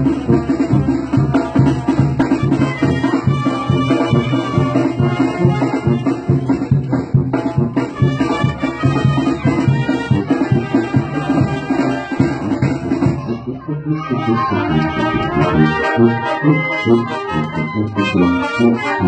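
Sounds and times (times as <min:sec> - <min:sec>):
drums steady beat: 0:00.0 - 0:13.4
brass band playing: 0:00.0 - 0:19.0.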